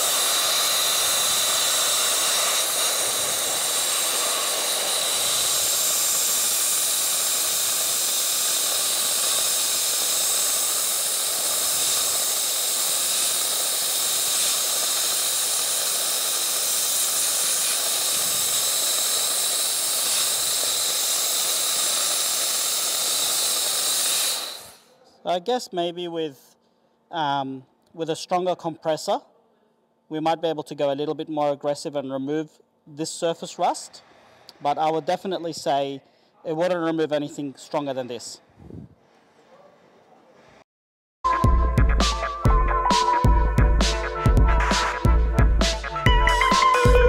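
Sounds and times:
dry ice blaster hissing: 0.0 - 24.9, 42.1 - 47.0.

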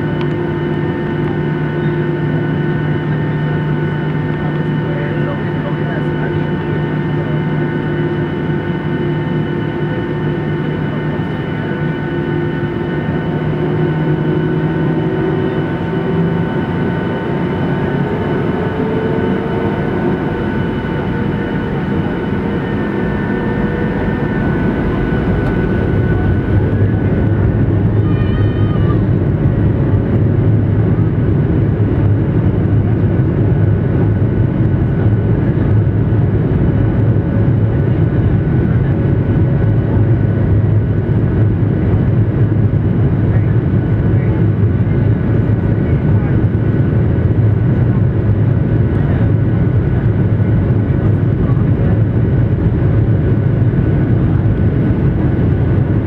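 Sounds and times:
jet engine whine in cabin: 0.0 - 56.0
low rumble: 10.9 - 56.0.

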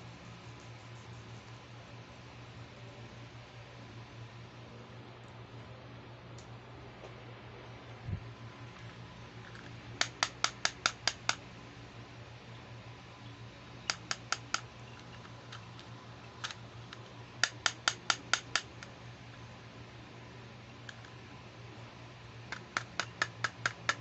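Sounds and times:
low steady hum: 0.0 - 24.0
fingertips tapping on hard plastic: 10.0 - 11.4, 22.5 - 24.0.

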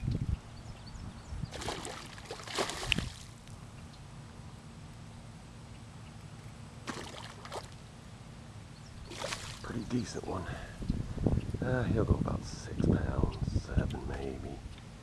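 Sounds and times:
fish splashing at water surface: 1.5 - 3.3, 6.8 - 7.8, 9.1 - 9.7.

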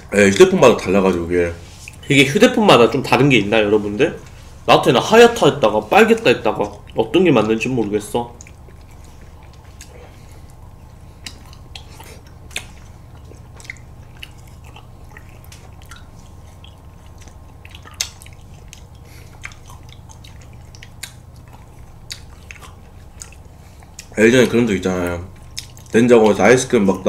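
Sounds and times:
steady low hum: 0.0 - 27.0
lip smacks: 6.1 - 26.4
wet bites: 6.1 - 26.4.

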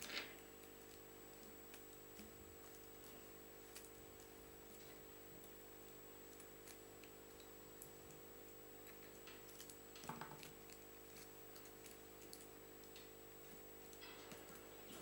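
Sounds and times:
hands rustling materials: 0.0 - 15.0.

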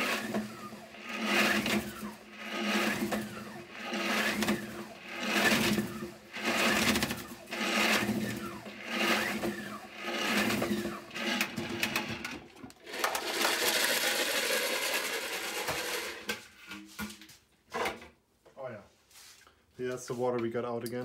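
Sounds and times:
salad spinner whirring: 0.0 - 16.3.

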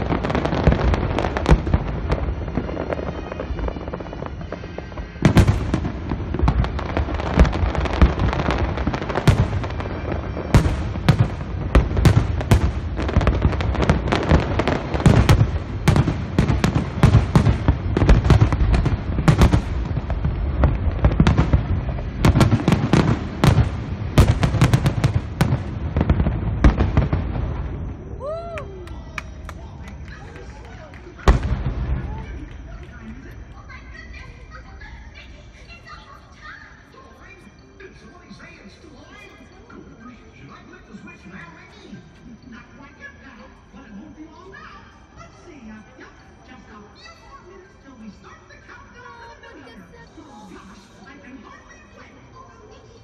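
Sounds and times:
fireworks booming and crackling: 0.0 - 36.4.

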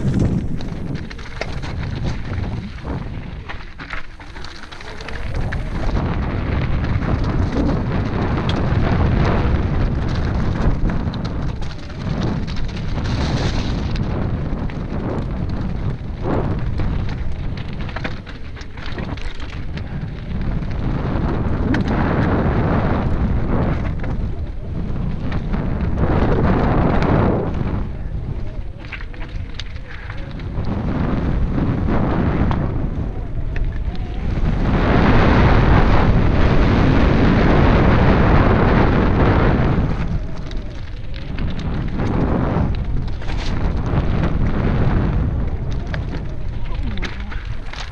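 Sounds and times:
bike rattling: 0.0 - 47.9
tyres crunching over stones: 0.0 - 47.9
wind on microphone: 0.0 - 47.9.

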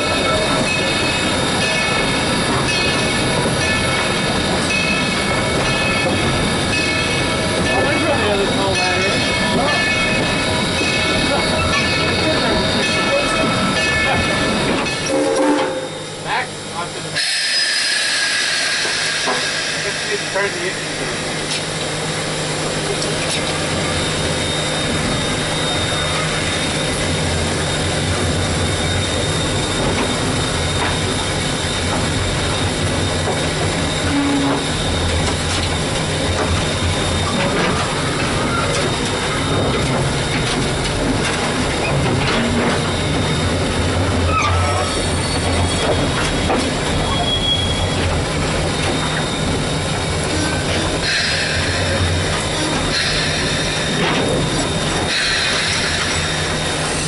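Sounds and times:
locomotive rumble and wheel clatter: 0.0 - 57.0
steam hiss: 17.2 - 21.6, 49.9 - 57.0.

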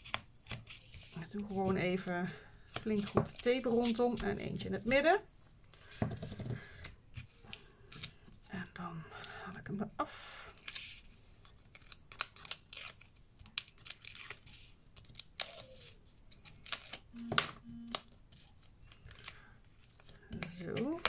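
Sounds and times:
paper rustling: 10.5 - 17.1.

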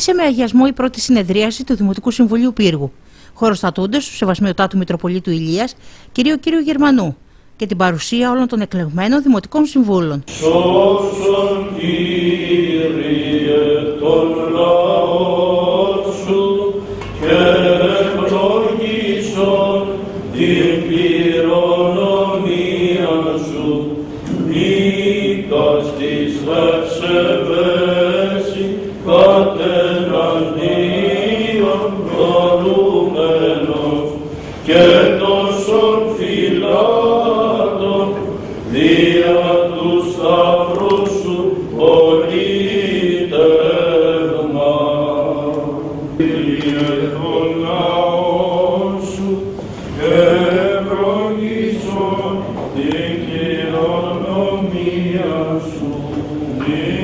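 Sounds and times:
singers breathing: 3.0 - 3.4, 5.8 - 6.2, 7.2 - 7.6, 34.2 - 34.7
choir chanting: 10.3 - 57.0.

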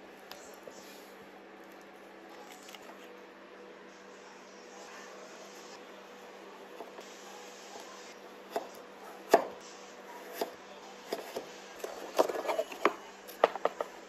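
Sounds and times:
knife slicing avocado: 8.5 - 13.6.

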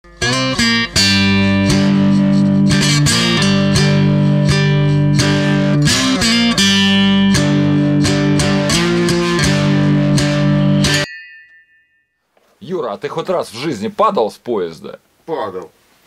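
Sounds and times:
guitar playing plucked chords: 0.1 - 11.5.

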